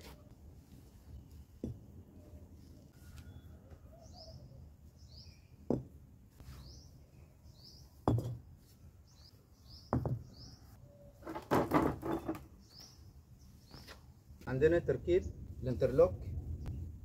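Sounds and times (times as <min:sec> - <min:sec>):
paving blocks clunking: 0:11.2 - 0:12.5.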